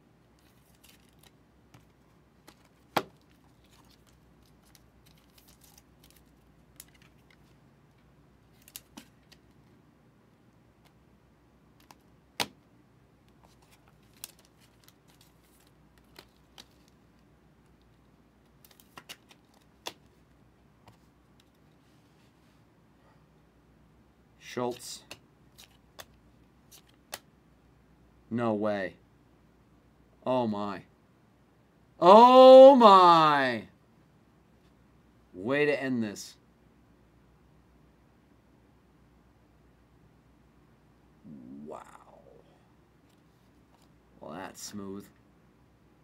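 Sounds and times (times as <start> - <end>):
trading cards rustling: 0.4 - 7.6, 8.5 - 9.6, 13.4 - 17.2, 18.5 - 20.2.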